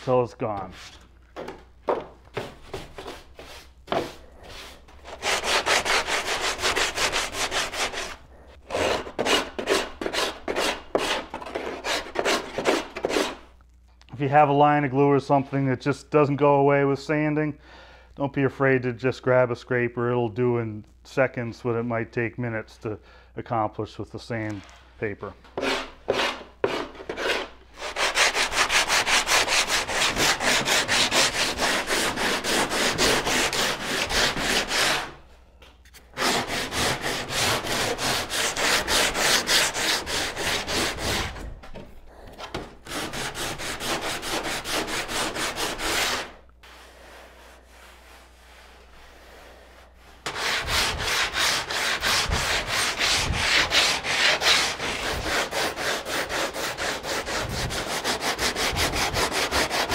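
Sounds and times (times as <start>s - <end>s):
sandpaper rubbing on wood: 2.7s - 8.2s, 25.6s - 35.1s, 36.2s - 41.4s, 42.9s - 59.9s.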